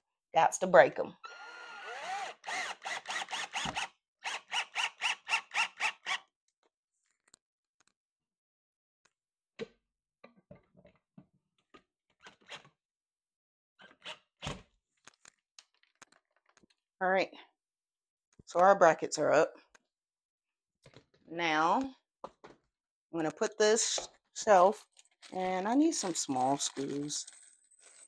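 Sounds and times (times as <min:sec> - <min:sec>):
cordless drill driving screws: 0:01.3 - 0:06.3
tool handling clicks and knocks: 0:24.9 - 0:28.0.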